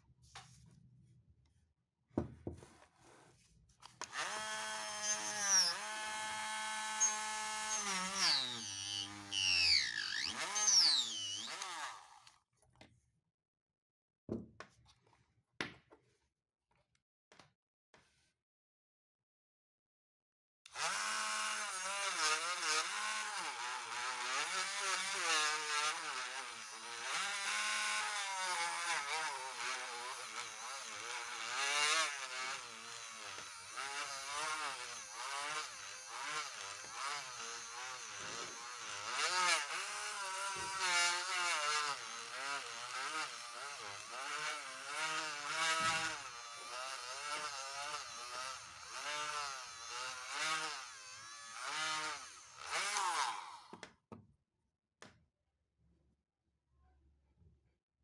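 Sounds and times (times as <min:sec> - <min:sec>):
rotary tool motor whine: 0:03.9 - 0:12.3, 0:20.7 - 0:53.7.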